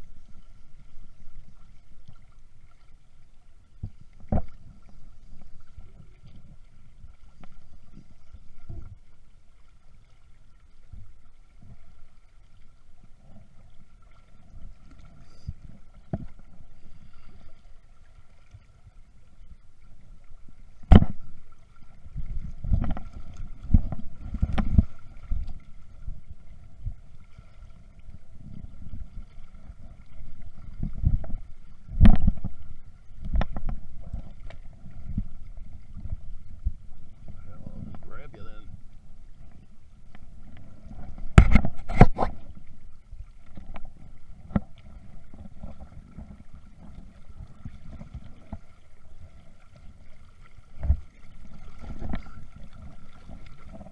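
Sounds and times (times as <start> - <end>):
wind rumbling on microphone: 20.2 - 53.9.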